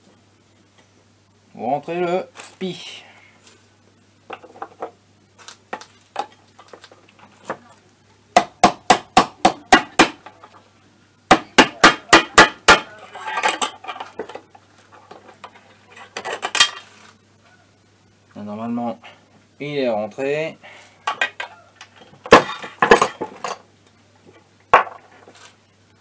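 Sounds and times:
clatter of handling parts: 4.3 - 7.6, 13.1 - 17.2, 21.0 - 25.6.

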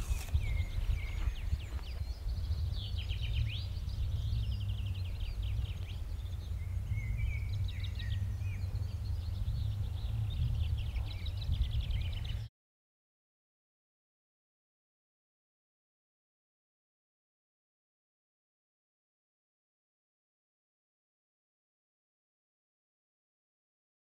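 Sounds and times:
small birds chirping and trilling: 0.0 - 12.5.

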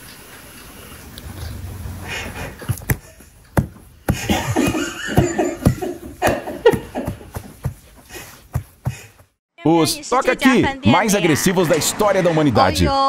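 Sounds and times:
person laughing: 4.1 - 7.7.

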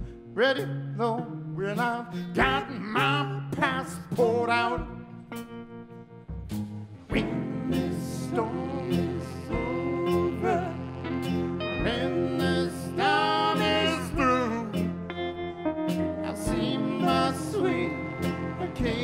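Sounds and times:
low beat: 6.3 - 15.2, 15.9 - 19.0
live band playing: 6.4 - 19.0.

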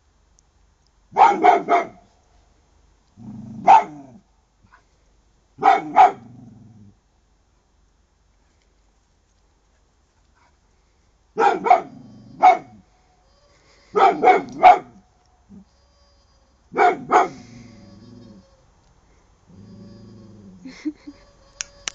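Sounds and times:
dog barking: 1.2 - 2.0, 3.6 - 4.1, 5.6 - 6.3, 11.4 - 12.8, 14.0 - 15.0, 16.7 - 17.5.

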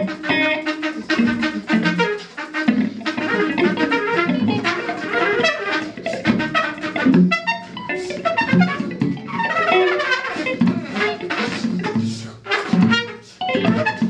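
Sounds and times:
trumpet playing fast notes: 0.0 - 14.0.

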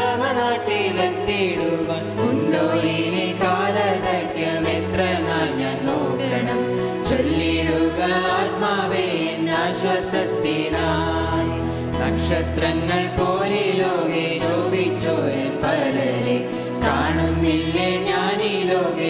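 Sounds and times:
hymn singing: 0.0 - 19.0.

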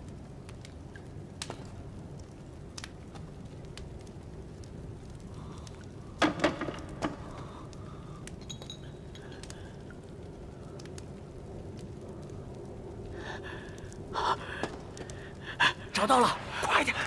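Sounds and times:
steady low rumble: 7.3 - 17.0.

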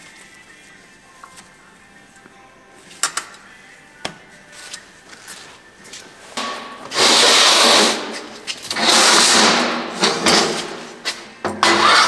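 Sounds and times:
metal scraping on metal: 11.6 - 12.0.

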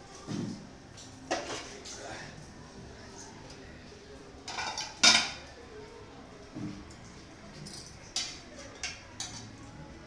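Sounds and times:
metal spoon clinking on pots: 7.6 - 9.5.

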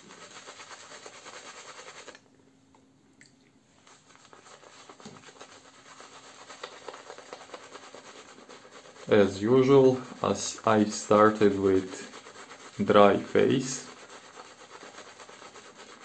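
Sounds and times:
shaving brush scrubbing stubble: 0.0 - 2.2, 3.8 - 16.0.

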